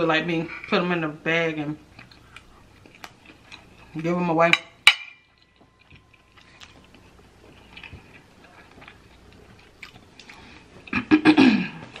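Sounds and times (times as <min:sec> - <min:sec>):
close chewing with mouth clicks: 0:01.8 - 0:04.1, 0:05.3 - 0:11.1.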